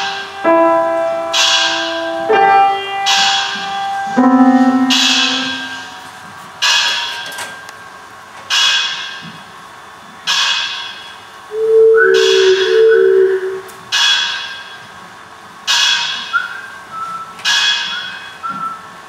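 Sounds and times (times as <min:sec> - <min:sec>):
held shifting electronic tones: 0:04.2 - 0:06.1, 0:11.5 - 0:13.8.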